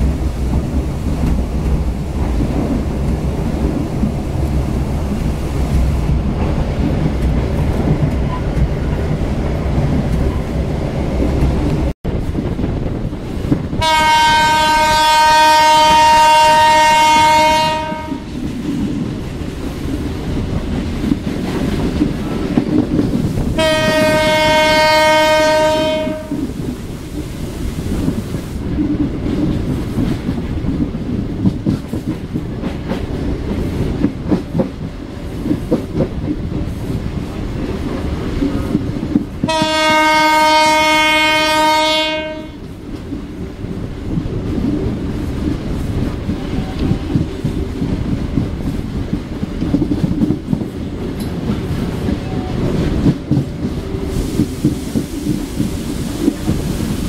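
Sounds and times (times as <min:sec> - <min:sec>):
train wheels rumbling: 0:00.0 - 0:57.0
locomotive horn blasts: 0:13.8 - 0:18.3, 0:23.6 - 0:26.4, 0:39.5 - 0:42.6.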